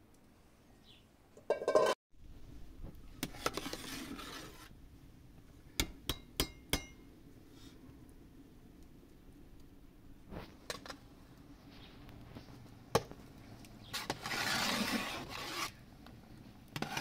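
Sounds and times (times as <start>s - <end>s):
rough scraping: 3.2s - 4.7s, 13.8s - 15.8s, 16.8s - 17.0s.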